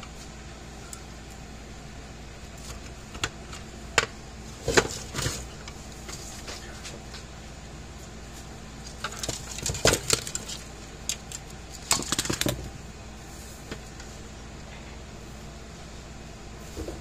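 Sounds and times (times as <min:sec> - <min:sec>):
metal parts clattering on wood: 0:09.0 - 0:12.6.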